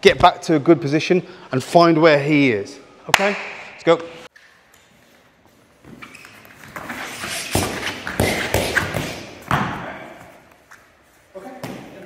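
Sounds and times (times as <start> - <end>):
people scuffling: 4.9 - 12.0.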